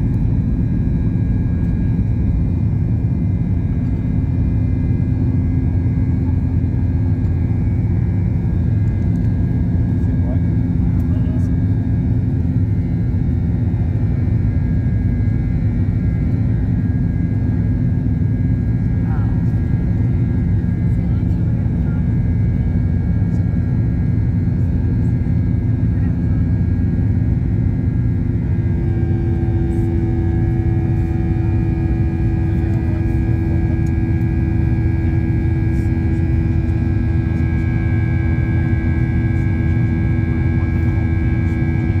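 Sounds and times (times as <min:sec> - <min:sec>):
jet engine and airflow rumble: 0:00.0 - 0:42.0
steady humming tones: 0:00.0 - 0:42.0.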